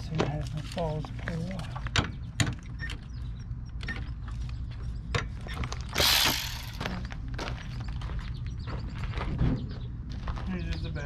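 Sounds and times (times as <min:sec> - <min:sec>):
metal scraping: 0:05.9 - 0:07.0.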